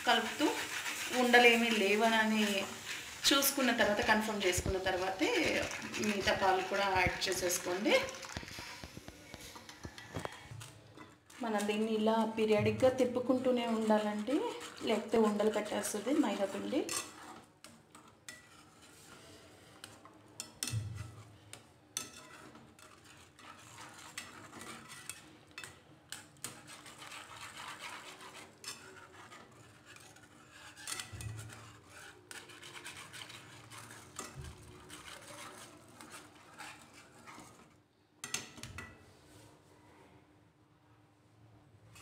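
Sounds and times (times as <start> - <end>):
whisk scraping a pan: 0.0 - 39.4.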